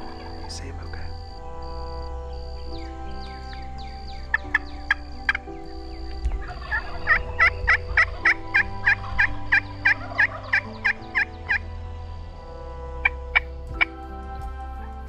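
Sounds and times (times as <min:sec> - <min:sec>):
soft background music: 0:00.0 - 0:15.0
turkey yelping: 0:06.4 - 0:11.6.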